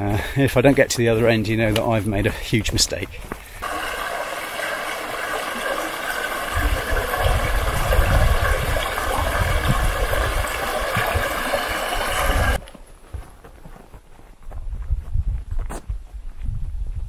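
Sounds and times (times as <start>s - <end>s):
stream rushing over rocks: 3.6s - 12.6s.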